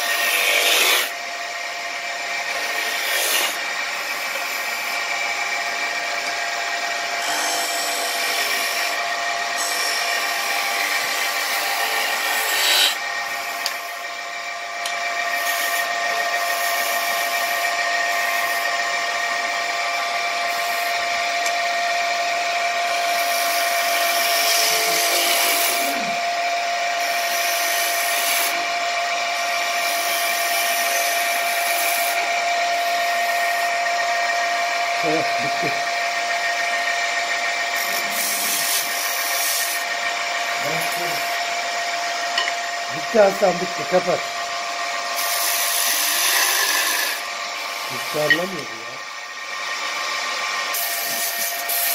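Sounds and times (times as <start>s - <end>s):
wood lathe motor whine: 0.0s - 51.9s
spinning wood rubbing hiss: 45.2s - 48.6s.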